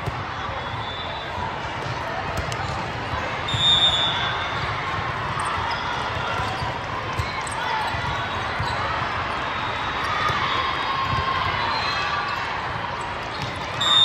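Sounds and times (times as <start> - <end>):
balls bouncing on hard court: 0.0 - 0.3, 1.6 - 3.7, 4.4 - 9.1, 12.4 - 13.8
chatter of many voices: 0.0 - 14.0.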